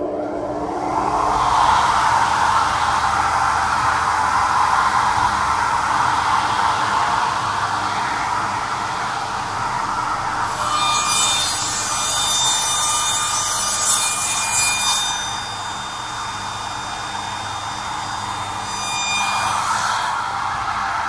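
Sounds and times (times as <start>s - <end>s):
mitre saw cutting wood: 10.2s - 21.0s.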